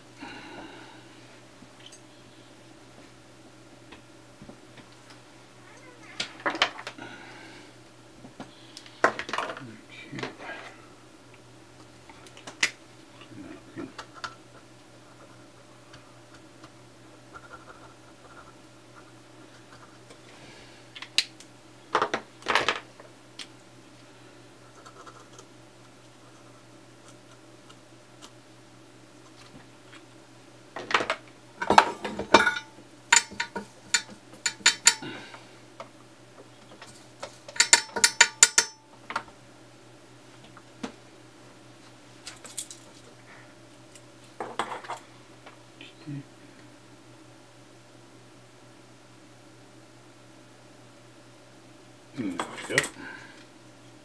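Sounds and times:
faint steady hum: 0.0s - 54.0s
toothbrush scrubbing circuit board: 17.3s - 20.0s
tools tapping and clicking: 30.8s - 35.2s, 36.6s - 39.3s.

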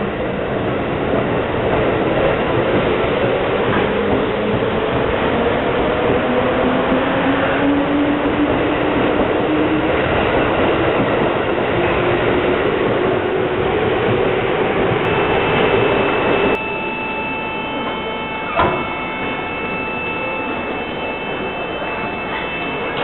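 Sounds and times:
train traction motors whining: 14.6s - 23.0s.

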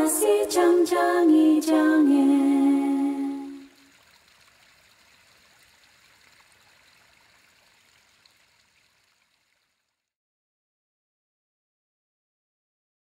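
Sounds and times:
faint steady hiss: 0.0s - 10.0s.

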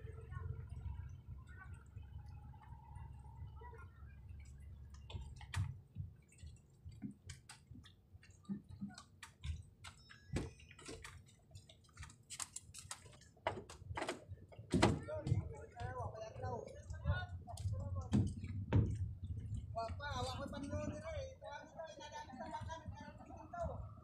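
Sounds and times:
water lapping at hull: 0.0s - 24.0s
barefoot footsteps on boat deck: 4.4s - 21.3s.

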